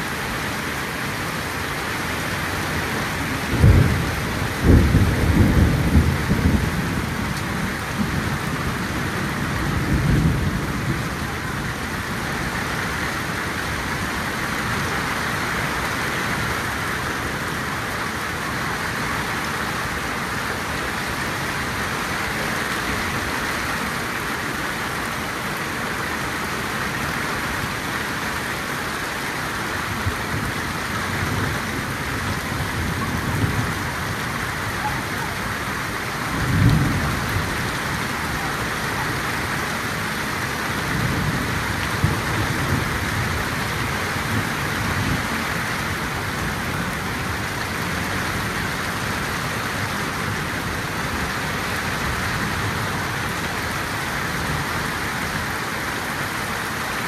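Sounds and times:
heavy rain on grass: 0:00.0 - 0:57.0
thunder rumbling: 0:03.3 - 0:11.5, 0:30.0 - 0:45.3.

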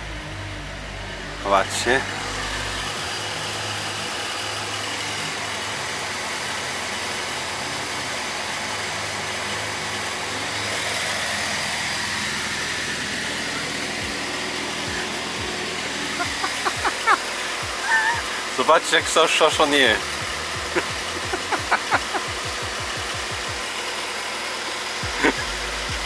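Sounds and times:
diesel truck engine idling: 0:00.0 - 0:26.0.

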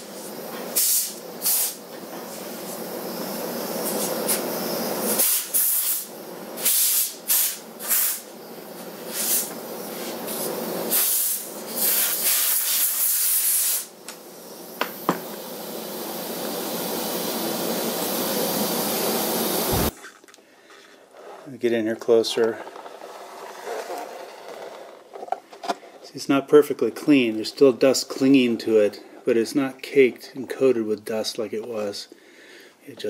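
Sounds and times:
compressed air hissing bursts: 0:00.0 - 0:20.0
steady machine noise: 0:14.5 - 0:20.0.

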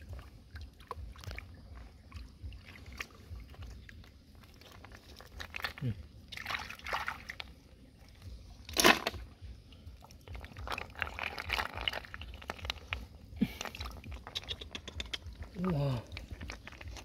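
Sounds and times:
hands sloshing in water: 0:00.0 - 0:07.6
snail shells clicking together: 0:13.6 - 0:17.0.

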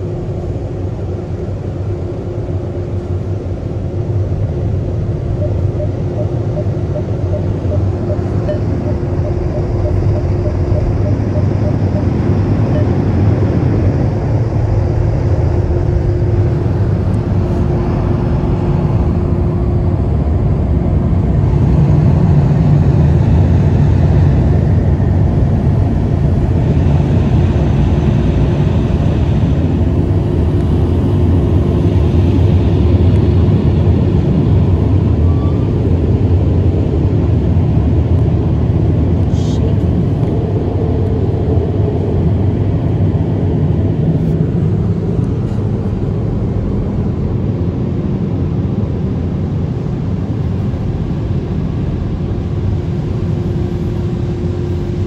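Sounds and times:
car wash blower dryers: 0:12.2 - 0:55.0.

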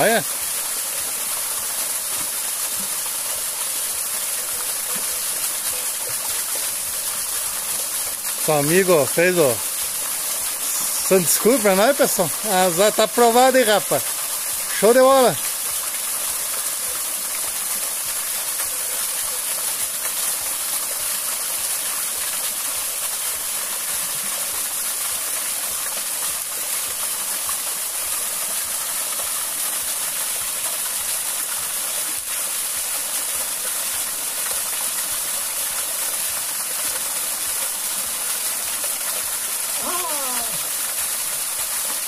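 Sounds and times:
waterfall splashing into pool: 0:00.0 - 0:42.0.

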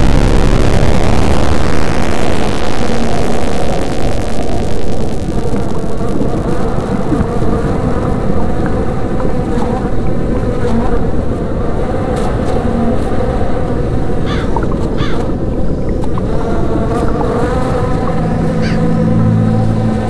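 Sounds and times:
bees buzzing: 0:16.3 - 0:20.0.

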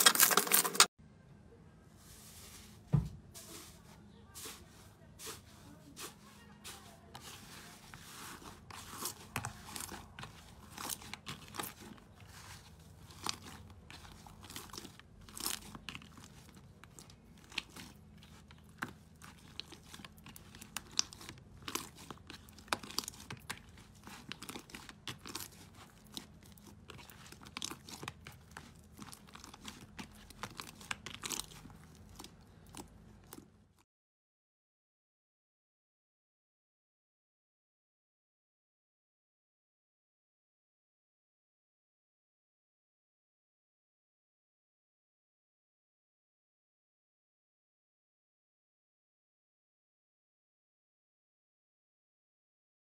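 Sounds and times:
slime crackling and popping: 0:13.0 - 0:33.4.

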